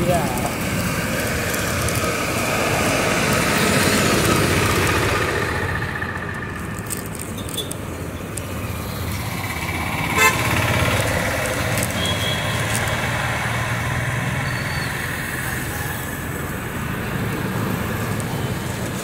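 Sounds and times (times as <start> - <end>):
road traffic passing: 0.0 - 19.0
vehicle horn toot: 10.1 - 10.6.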